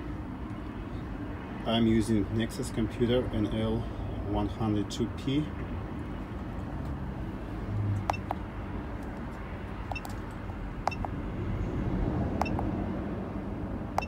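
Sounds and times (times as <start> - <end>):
keypad click-beeps: 8.1 - 8.3, 9.9 - 10.2, 10.8 - 11.1, 12.4 - 12.7.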